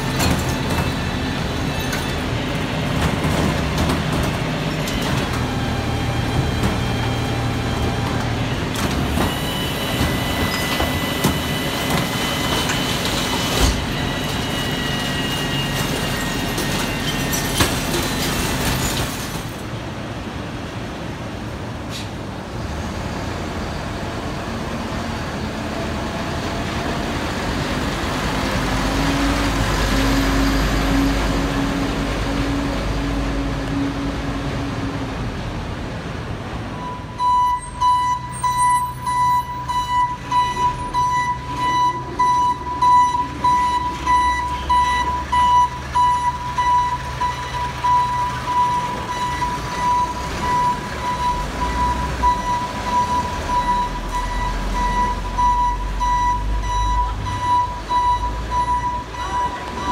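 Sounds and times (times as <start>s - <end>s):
truck reversing alarm beeping: 0.0s - 18.8s, 36.7s - 59.9s
garbage truck diesel engine running: 0.0s - 59.9s.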